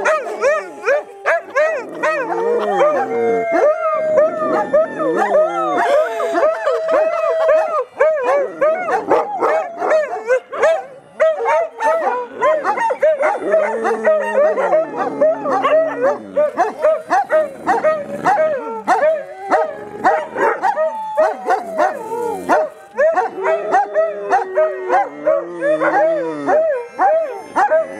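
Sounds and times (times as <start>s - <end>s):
deep dog howl: 0.0s - 27.9s
dogs howling and yipping: 0.0s - 27.9s.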